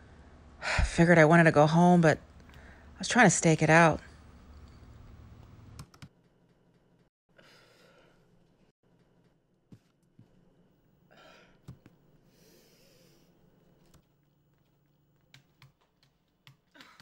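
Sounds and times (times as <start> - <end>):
faint breathing: 2.4 - 3.0, 7.3 - 8.4, 11.0 - 13.8.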